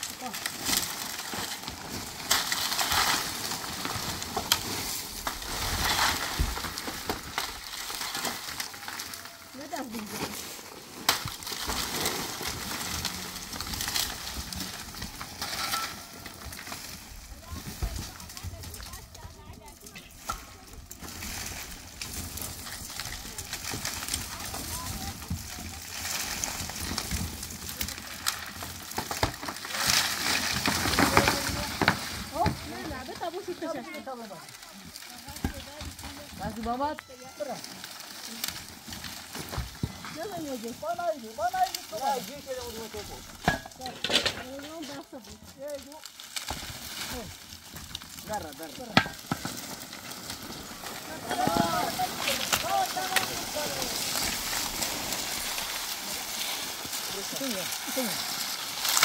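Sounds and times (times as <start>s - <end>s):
shovels breaking dry reeds: 0.0s - 17.4s, 37.7s - 59.0s.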